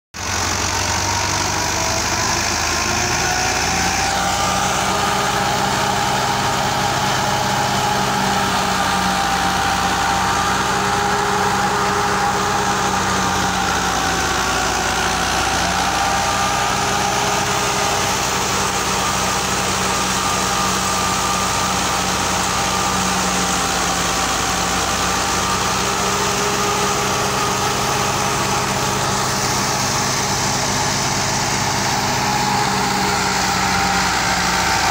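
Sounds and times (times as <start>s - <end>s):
tractor diesel engine running: 0.1s - 34.9s.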